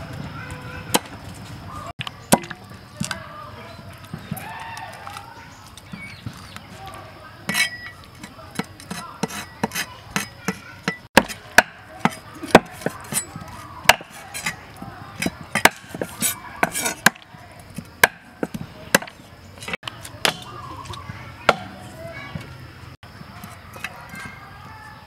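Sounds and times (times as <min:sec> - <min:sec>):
cleaver chopping on wooden block: 0:08.6 - 0:14.6, 0:15.2 - 0:17.3, 0:18.0 - 0:19.2, 0:21.5 - 0:21.8.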